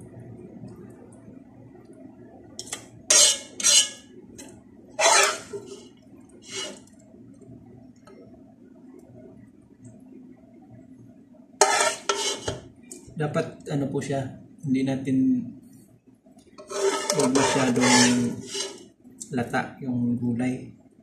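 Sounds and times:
spatula scraping a glass dish: 0:03.1 - 0:04.0, 0:05.0 - 0:05.9, 0:06.5 - 0:06.8, 0:11.6 - 0:12.6, 0:16.6 - 0:18.8.

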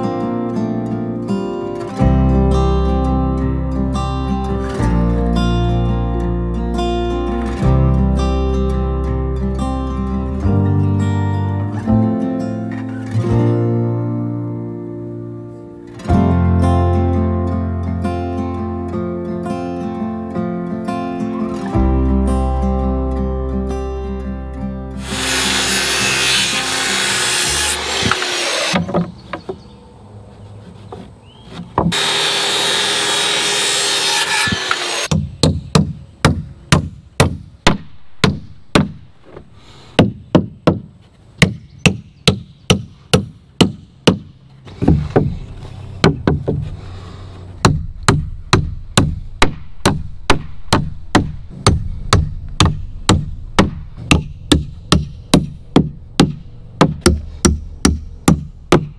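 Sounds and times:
saw cutting lumber: 0:25.0 - 0:29.0, 0:30.7 - 0:35.1
hammer driving nails into wood: 0:25.0 - 0:29.1.

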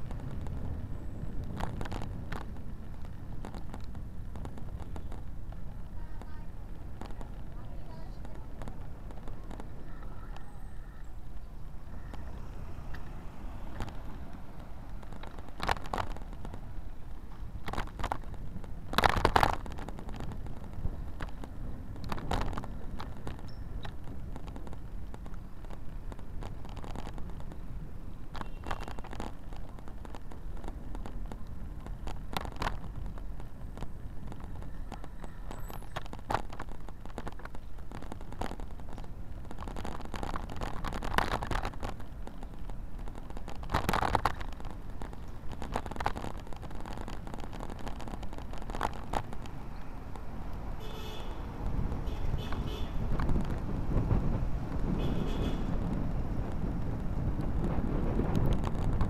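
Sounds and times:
wind and road rumble: 0:00.0 - 0:59.0
bike and camera mount rattles: 0:13.7 - 0:27.6.

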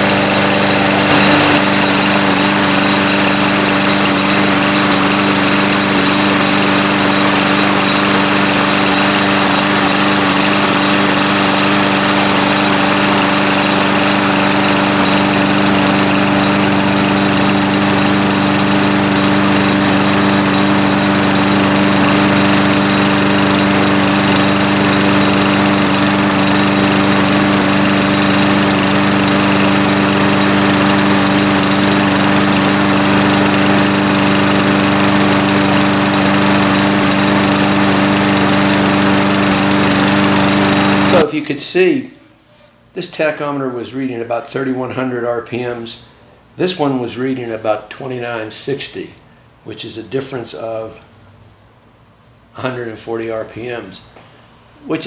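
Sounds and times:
lawn mower engine running steadily: 0:00.0 - 0:41.3.

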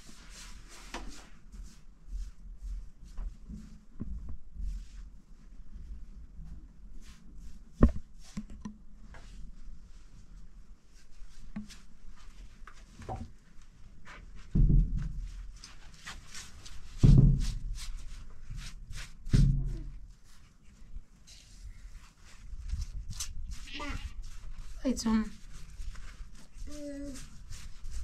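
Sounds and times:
dull thuds: 0:14.4 - 0:15.5, 0:16.9 - 0:17.8, 0:19.2 - 0:20.0
faint scratching strokes: 0:17.6 - 0:28.0.

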